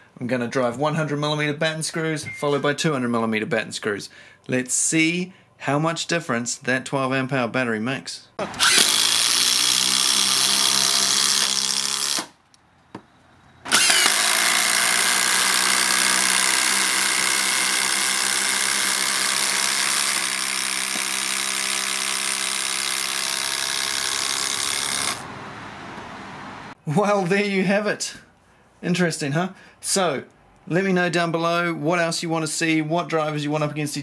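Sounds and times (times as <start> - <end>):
impact driver hammering screws: 8.4 - 12.4, 13.7 - 25.2.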